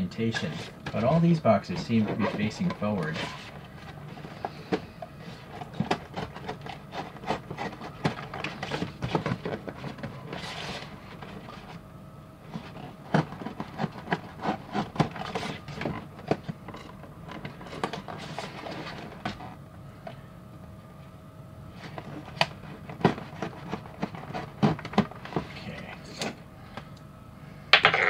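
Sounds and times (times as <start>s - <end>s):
cardboard boxes being handled: 0.4s - 11.8s, 12.5s - 19.6s, 21.8s - 25.9s
scraping rustle of cardboard: 0.4s - 11.8s, 12.5s - 16.1s, 17.4s - 19.6s.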